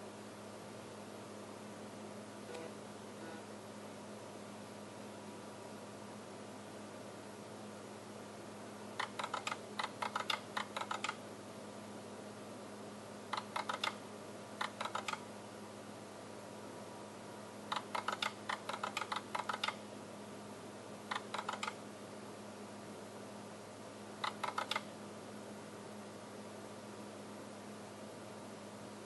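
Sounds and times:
steady hum and hiss: 0.0s - 29.0s
relays clicking in rapid bursts: 9.0s - 11.2s, 13.4s - 14.0s, 14.6s - 15.2s, 17.7s - 19.8s, 21.1s - 21.8s, 24.2s - 24.9s.

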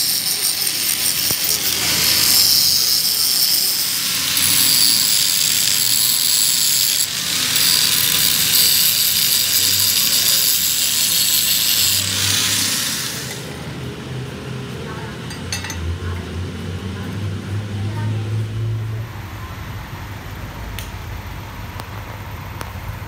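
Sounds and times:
angle grinder grinding steel: 0.0s - 13.9s.

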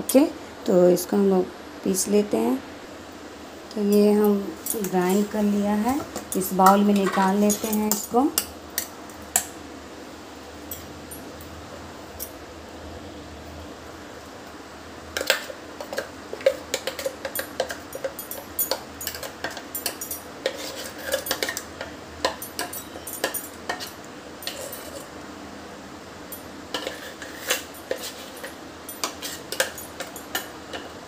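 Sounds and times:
spoon clinking on jar and bowl: 6.2s - 8.5s, 15.2s - 25.1s, 26.4s - 30.8s
spoon scraping batter from jar: 20.4s - 21.6s, 26.8s - 29.7s.

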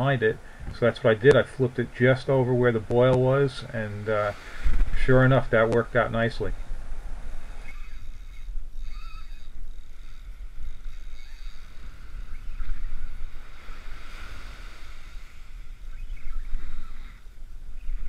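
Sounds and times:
wind buffeting microphone: 0.0s - 18.0s
small waves breaking: 0.5s - 7.8s, 11.1s - 18.0s.

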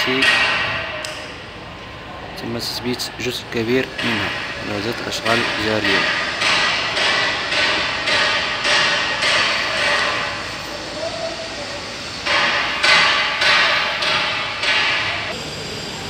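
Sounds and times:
hammer blows with echo: 0.0s - 1.4s, 3.5s - 11.3s, 12.2s - 15.4s.

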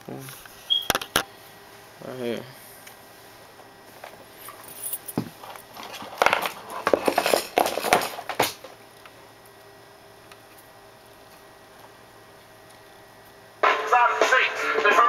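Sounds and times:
cables clattering and rustling: 4.5s - 8.7s.

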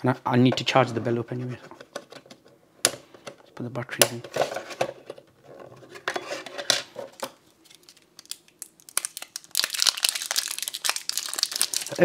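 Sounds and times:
plastic packaging crinkling: 7.2s - 12.0s.

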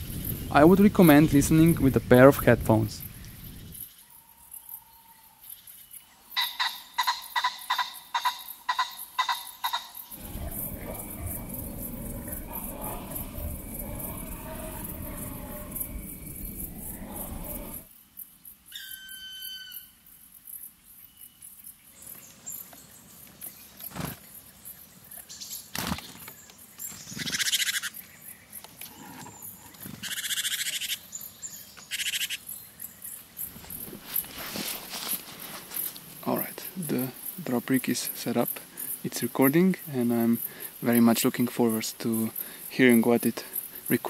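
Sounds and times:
insects ticking: 0.0s - 44.0s
bird calls: 3.0s - 17.8s, 21.1s - 34.3s
harsh bird calls: 6.0s - 17.9s.

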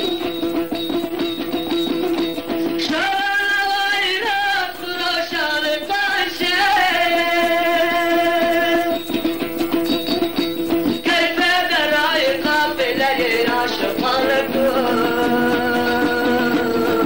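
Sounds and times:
man singing ornamented melody: 0.0s - 17.0s
plucked string instrument: 0.0s - 17.0s.

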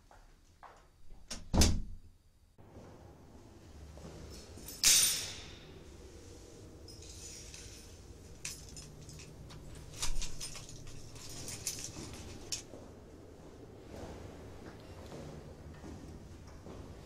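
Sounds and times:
keys jingling: 4.3s - 5.5s, 6.7s - 12.7s
keys clattering onto hard floor: 4.3s - 5.7s, 6.8s - 12.7s.

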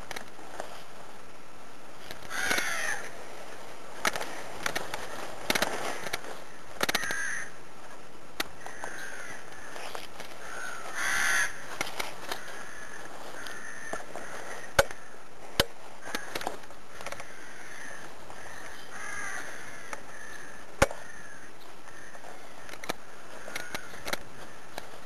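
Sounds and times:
crows cawing: 2.2s - 3.2s, 4.2s - 7.6s, 8.6s - 25.0s
sharp clicks: 4.0s - 7.2s, 22.6s - 24.9s.

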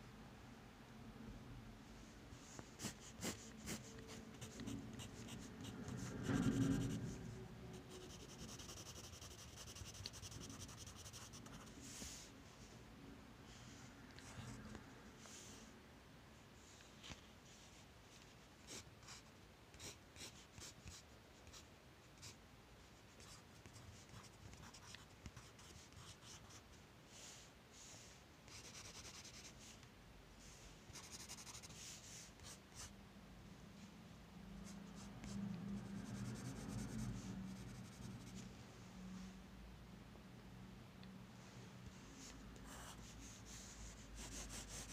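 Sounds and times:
pencil scratching on paper: 2.8s - 12.2s, 23.2s - 26.6s, 28.5s - 29.5s, 30.9s - 31.8s, 34.9s - 38.4s, 42.7s - 44.9s.

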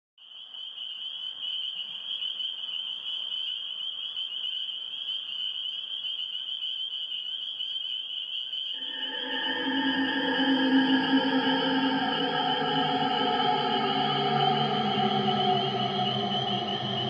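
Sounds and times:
insect trilling: 6.7s - 17.0s.

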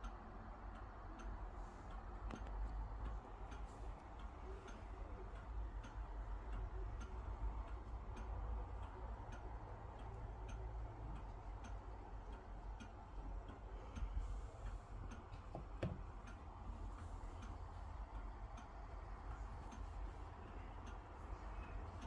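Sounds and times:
steady ticking: 0.0s - 22.0s
soft knock: 15.5s - 16.0s.

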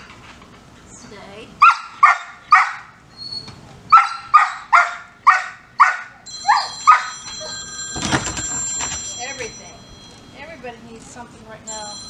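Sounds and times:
dog barking: 1.6s - 2.9s, 3.9s - 7.1s.

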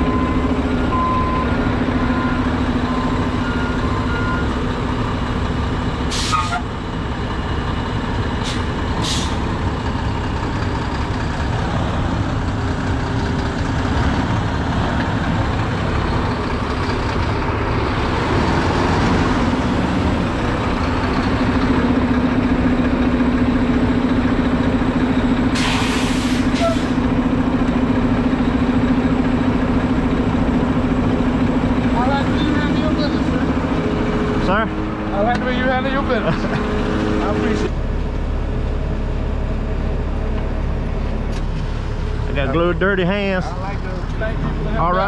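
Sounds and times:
diesel truck engine: 0.0s - 45.0s
air brake hisses: 6.1s - 6.6s, 8.4s - 9.4s, 25.5s - 27.0s.

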